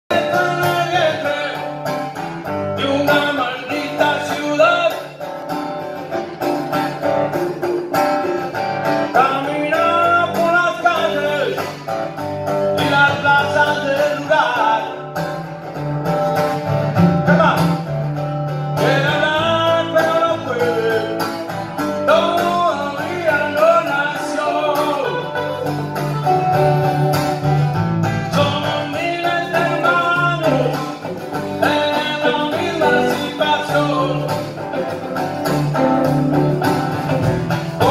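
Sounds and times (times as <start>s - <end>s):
second guitar: 0.1s - 37.9s
strummed acoustic guitar: 0.1s - 37.9s.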